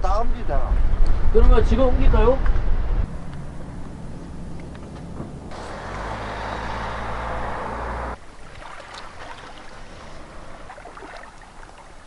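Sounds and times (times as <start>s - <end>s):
boat engine humming: 3.1s - 12.0s.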